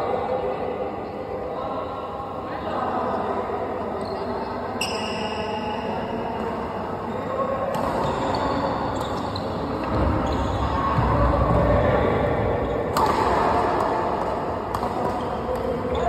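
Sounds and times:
racket hitting shuttlecock: 12.9 - 15.9.

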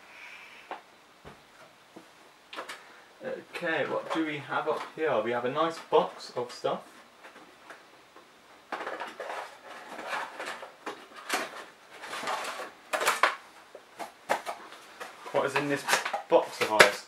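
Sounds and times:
cardboard rustling and scraping: 8.8 - 13.3.

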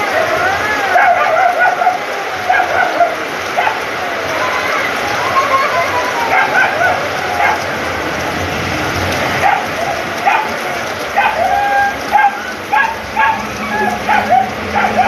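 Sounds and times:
heavy rain falling: 0.0 - 15.0
dog barking: 0.9 - 3.9, 6.3 - 7.7, 9.4 - 15.0.

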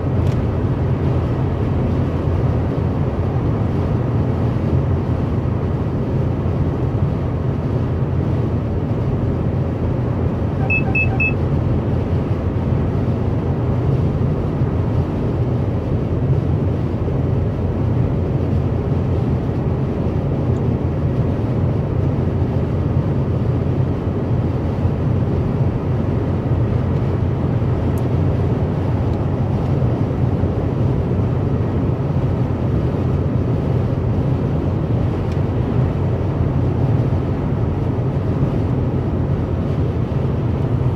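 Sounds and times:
car engine hum: 0.0 - 40.9
road and tyre rumble: 0.0 - 40.9
quick high beeps: 10.6 - 11.4.

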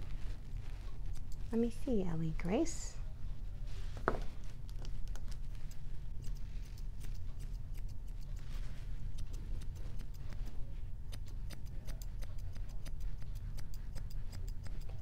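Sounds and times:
low steady hum: 0.0 - 15.0
grooming shears snipping: 0.9 - 1.6, 4.6 - 15.0.

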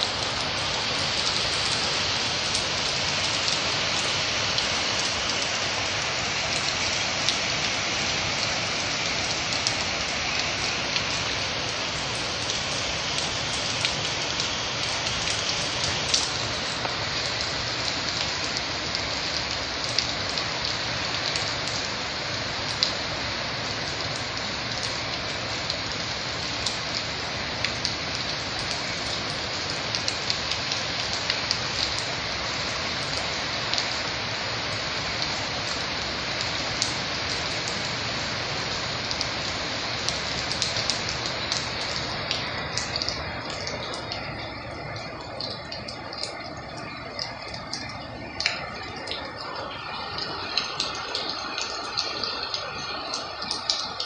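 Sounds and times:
heavy rain pouring: 0.0 - 54.0
raindrop ticks: 0.0 - 54.0.

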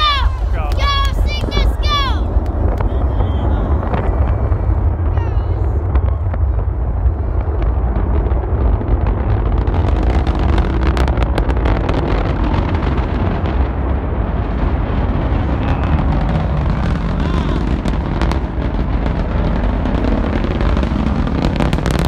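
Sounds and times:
rocket engines rumbling and crackling: 0.0 - 22.0.

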